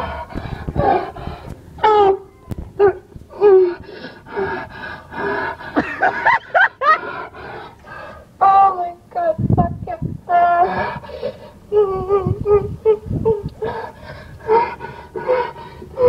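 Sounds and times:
woman moaning and crying: 0.7 - 7.2, 10.0 - 16.0.

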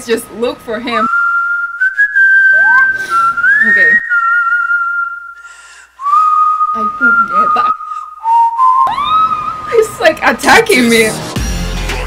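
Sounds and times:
whistled melody: 1.1 - 10.0.

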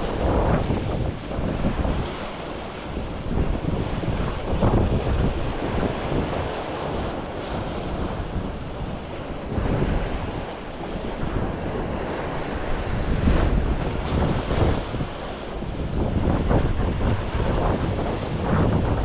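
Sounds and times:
waves washing on shore: 0.0 - 19.0
wind buffeting microphone: 0.0 - 19.0.

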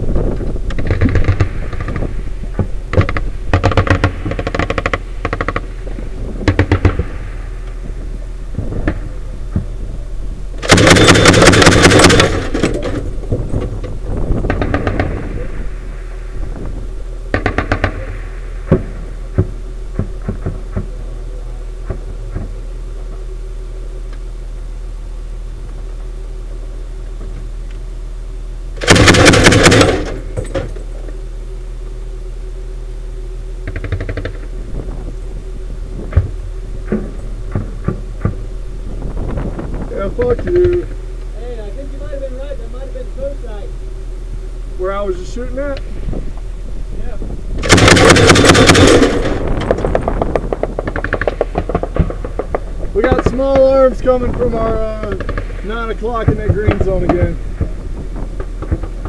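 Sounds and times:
vehicle engine humming: 0.0 - 59.0
grenade launcher firing bursts: 2.9 - 5.7, 6.4 - 7.3, 10.6 - 13.0, 14.4 - 16.0, 17.3 - 20.9, 28.8 - 30.6, 47.6 - 53.3.

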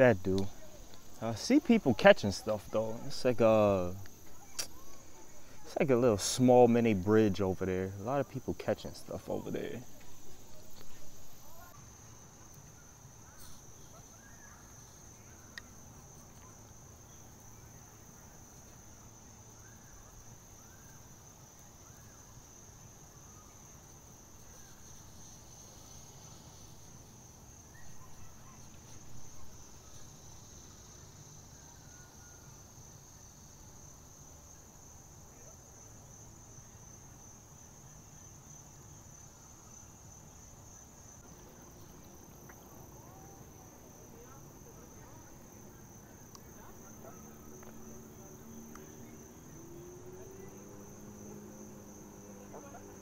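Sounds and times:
faint chirps: 0.0 - 18.8, 27.6 - 32.8
insects trilling: 0.0 - 53.0.

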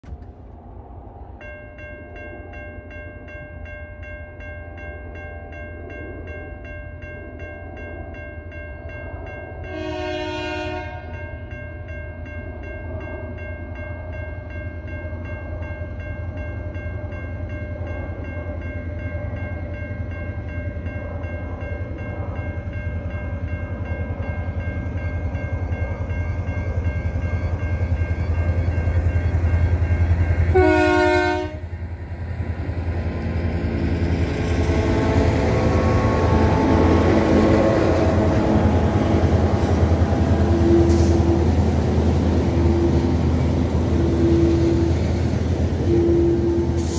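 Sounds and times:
train horn blast: 9.6 - 11.2, 30.5 - 31.7, 34.5 - 39.1, 40.3 - 41.5, 45.8 - 46.9.

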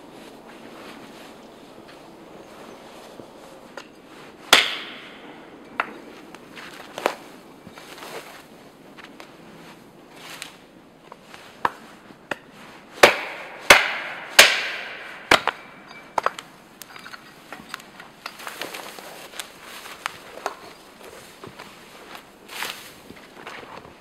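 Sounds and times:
axe chopping branches: 3.7 - 8.4, 10.2 - 22.9.

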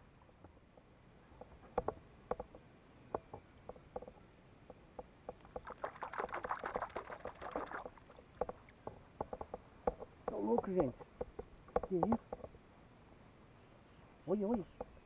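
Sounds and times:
light clicks and knocks: 0.0 - 5.6, 8.3 - 12.6, 14.4 - 15.0
fish splashing in water: 5.4 - 8.9.

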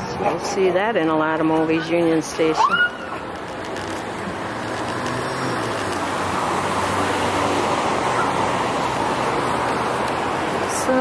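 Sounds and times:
tyre and road noise: 0.0 - 11.0
vehicle engine hum: 0.0 - 11.0.

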